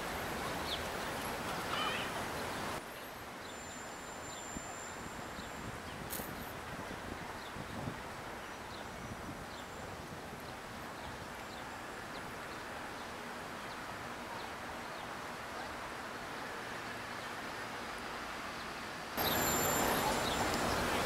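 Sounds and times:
outdoor background noise: 0.0 - 21.0
bird chirps: 19.2 - 21.0.

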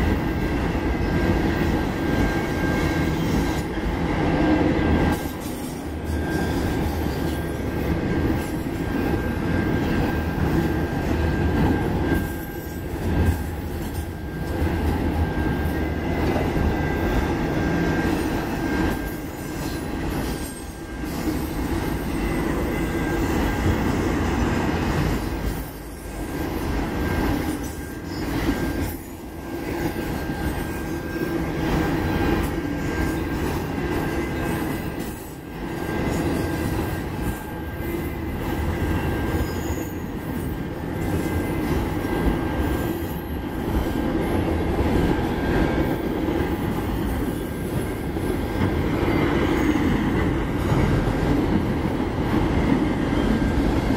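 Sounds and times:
train wheels rumbling on rails: 0.0 - 53.9.

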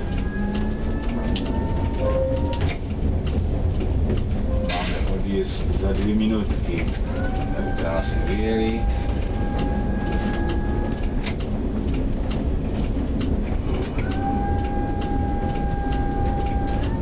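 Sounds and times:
high wheel squeal: 0.0 - 2.9, 4.4 - 5.5, 6.6 - 11.4, 14.0 - 17.0
rail joint clicks: 0.0 - 17.0
tram rumbling on rails: 0.0 - 17.0.

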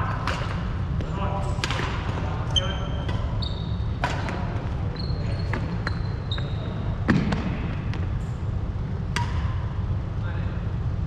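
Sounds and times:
rackets striking shuttlecock: 0.2 - 2.2, 3.0 - 3.4, 4.0 - 4.5, 9.1 - 9.7
shoes squeaking on hardwood floor: 2.5 - 3.9, 4.6 - 6.9.

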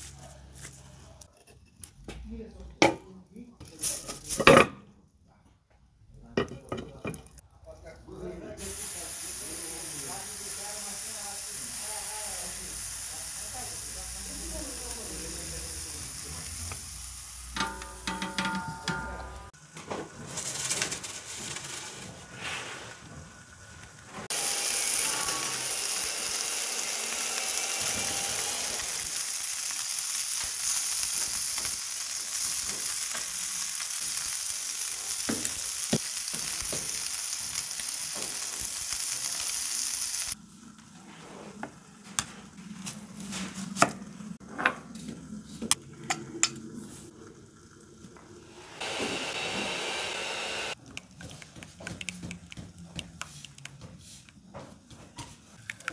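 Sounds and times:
burger patty sizzling on grill: 8.6 - 43.8.

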